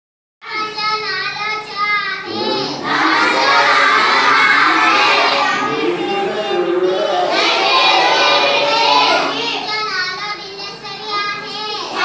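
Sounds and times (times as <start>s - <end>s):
child singing wavering notes: 2.0s - 3.2s
children singing together: 2.2s - 9.9s, 10.7s - 12.0s.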